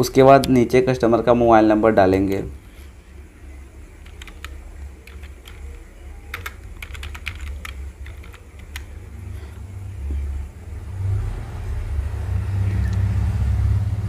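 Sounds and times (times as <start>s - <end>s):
keys clicking: 4.0s - 9.6s.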